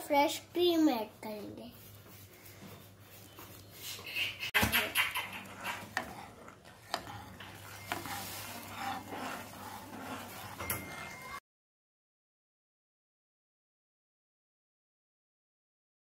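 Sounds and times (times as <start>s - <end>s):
spoon scraping metal pan: 4.2s - 11.4s.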